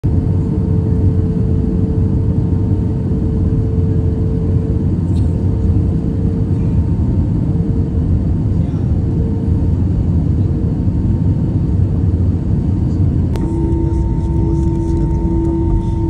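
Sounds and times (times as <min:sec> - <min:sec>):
airliner engines droning: 0:00.0 - 0:16.0
steady hum tone: 0:12.5 - 0:16.0.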